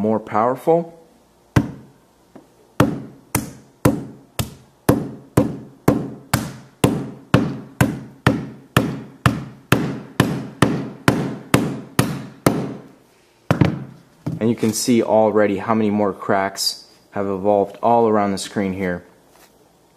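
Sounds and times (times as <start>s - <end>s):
hammer striking phone: 1.6s - 1.8s, 2.8s - 12.8s.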